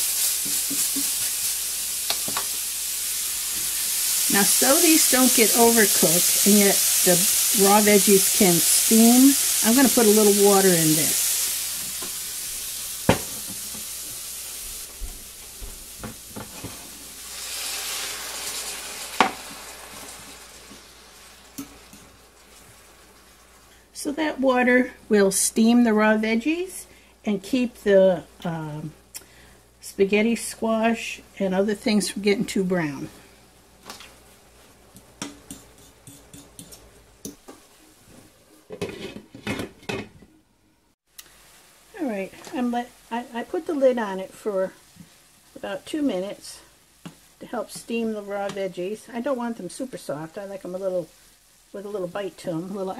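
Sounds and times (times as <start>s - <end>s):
vegetables sizzling in skillet: 0.0s - 39.5s, 41.0s - 52.9s
utensil clacking against pan: 35.0s - 37.6s.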